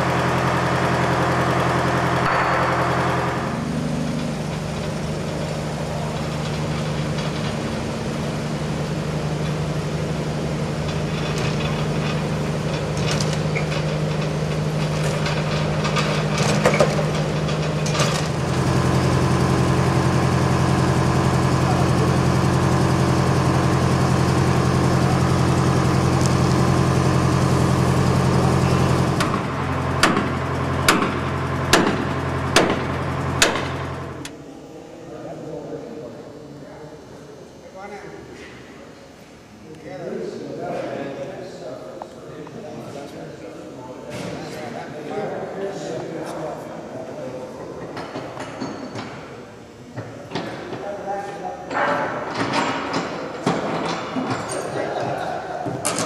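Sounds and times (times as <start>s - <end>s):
tractor engine running: 0.0s - 34.3s
sharp knocks: 29.2s - 33.9s.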